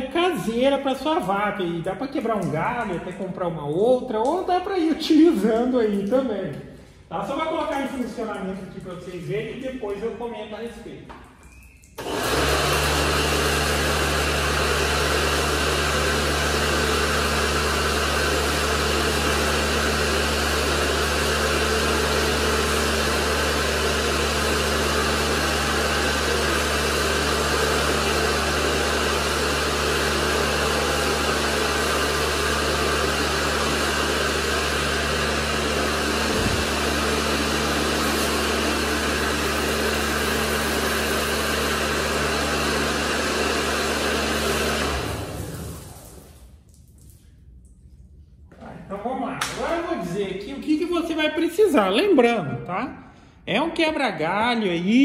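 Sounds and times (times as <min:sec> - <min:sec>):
pressure washer motor humming: 0:12.0 - 0:46.6
water jet hissing on concrete: 0:16.8 - 0:47.2.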